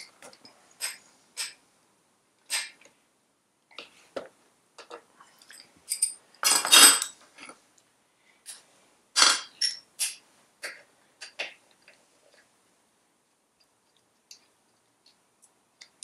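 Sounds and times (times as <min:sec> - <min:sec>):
metal tools clinking: 0:05.4 - 0:07.5, 0:09.2 - 0:10.2.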